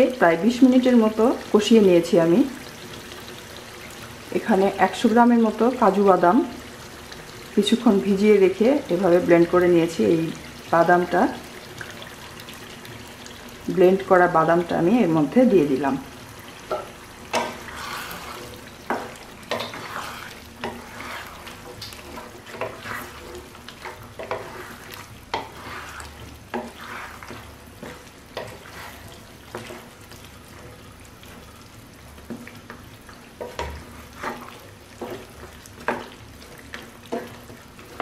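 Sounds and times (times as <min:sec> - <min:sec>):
meat sizzling in oil: 0:00.0 - 0:38.0
spatula scraping a pan: 0:16.6 - 0:31.5, 0:33.4 - 0:38.0.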